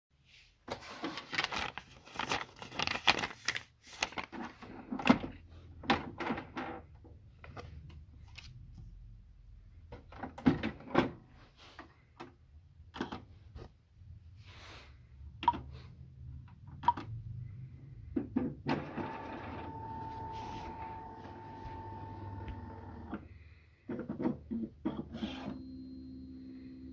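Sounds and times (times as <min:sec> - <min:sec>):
printer mechanism whine: 0:18.7 - 0:23.2, 0:24.8 - 0:26.9.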